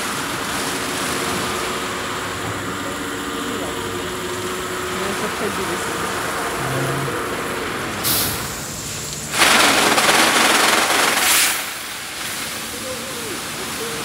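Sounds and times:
water spraying: 0.0s - 14.0s.

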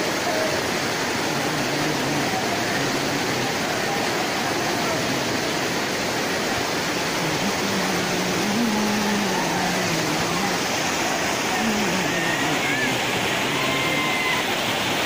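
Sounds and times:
waterfall roaring: 0.0s - 15.0s.

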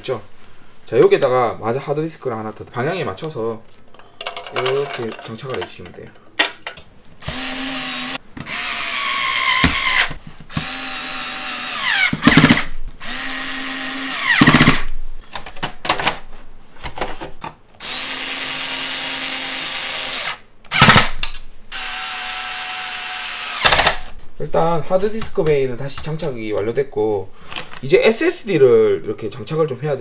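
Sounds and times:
cordless drill whining: 7.2s - 14.9s, 17.8s - 21.1s, 21.7s - 24.0s
harsh drill bursts: 7.2s - 14.9s, 17.8s - 24.1s.

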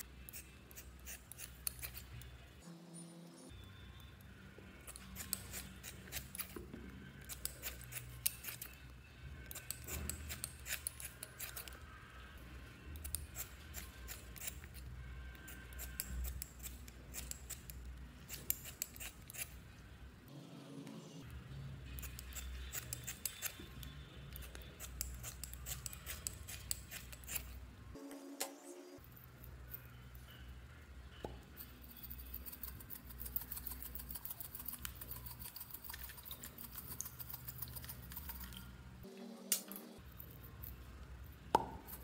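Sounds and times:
scissors snipping foam: 0.3s - 2.2s, 15.6s - 19.6s, 24.3s - 27.6s.

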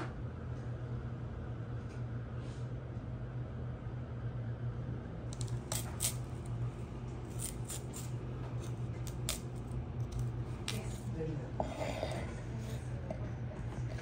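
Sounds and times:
steady low hum: 0.0s - 14.0s
knife cutting on cutting board: 5.4s - 6.2s, 7.3s - 12.3s.

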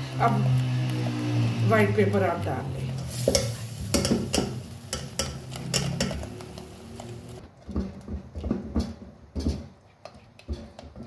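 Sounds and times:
spatula scraping a saucepan: 0.0s - 7.4s.

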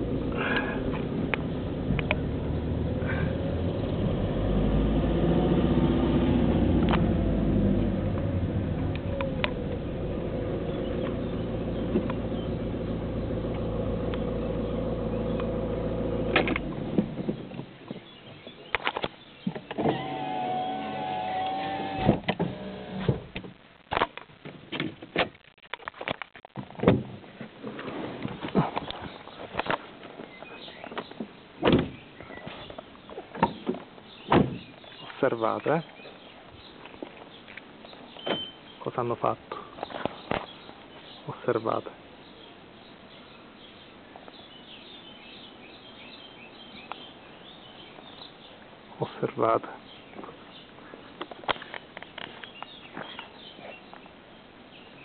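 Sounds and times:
power window motor whining: 19.7s - 23.3s
faint high bird chirps: 37.4s - 38.9s.

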